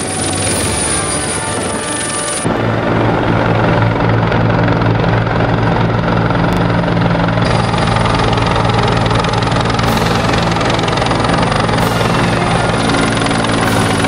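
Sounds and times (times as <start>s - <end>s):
helicopter rotor and turbine drone: 0.0s - 14.0s.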